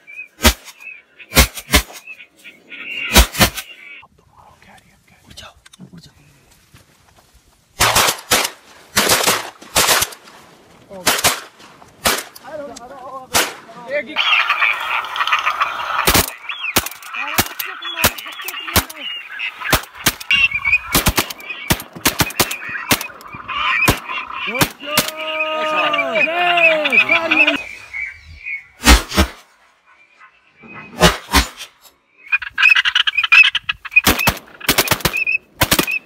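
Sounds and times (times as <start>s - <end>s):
waterfowl calling: 0.0s - 4.0s, 13.8s - 28.8s, 29.8s - 31.1s, 32.1s - 36.0s
drawn-out arching quacks: 0.8s - 4.0s, 14.0s - 29.0s, 29.7s - 31.4s, 32.2s - 36.0s
shotguns firing: 7.8s - 10.2s, 11.0s - 12.4s, 13.3s - 13.7s, 16.0s - 19.0s, 20.9s - 25.1s, 34.0s - 36.0s.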